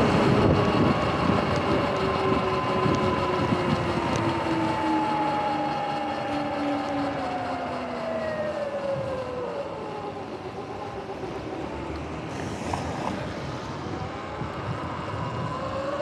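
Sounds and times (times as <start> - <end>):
electric motor whining: 0.0 - 9.5
wind: 0.0 - 16.0
tyres hissing on wet pavement: 12.3 - 13.6.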